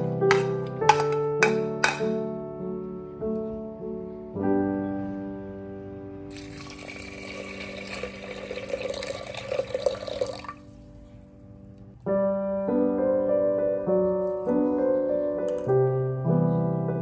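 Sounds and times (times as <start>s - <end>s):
soft piano music: 0.0s - 17.0s
water pouring and splashing: 6.3s - 10.6s.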